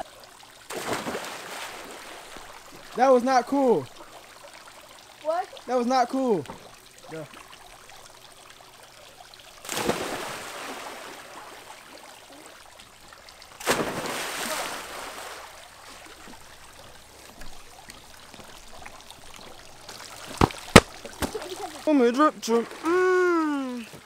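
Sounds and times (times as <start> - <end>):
water churning: 0.0 - 24.0
splash into pool: 0.7 - 2.5, 9.6 - 12.0, 13.6 - 16.2, 20.0 - 21.8.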